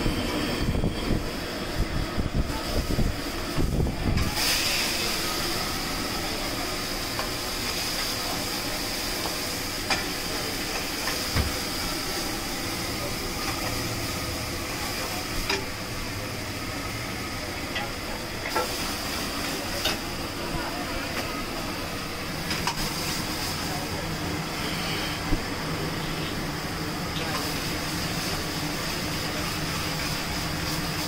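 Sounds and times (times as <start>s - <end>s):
gas burner hissing: 0.0s - 31.0s.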